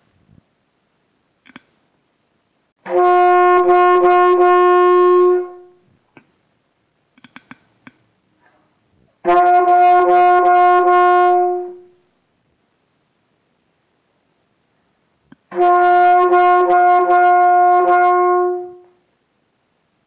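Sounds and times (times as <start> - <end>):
faint clicks: 7.2 - 8.0
alto saxophone tongued note: 15.5 - 19.0.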